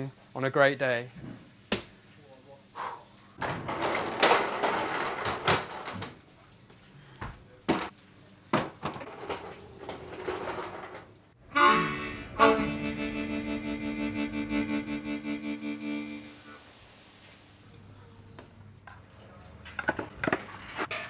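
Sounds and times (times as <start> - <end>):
background music with held chords: 11.4 - 16.6.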